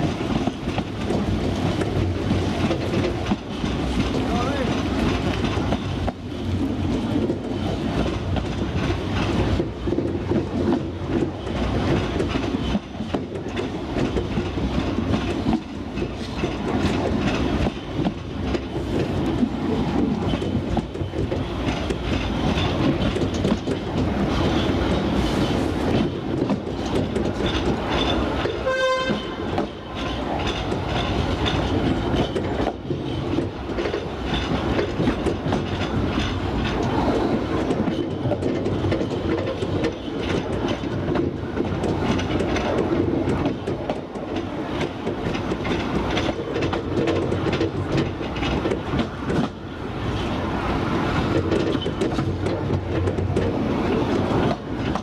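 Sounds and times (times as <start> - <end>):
train wheels clattering: 0.0 - 55.0
train horn toot: 28.6 - 29.5.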